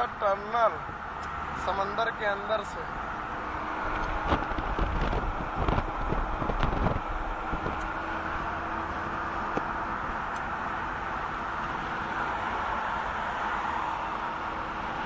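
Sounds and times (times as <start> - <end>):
car road and engine noise: 0.0 - 15.0
low rumbles and buffeting: 0.0 - 15.0.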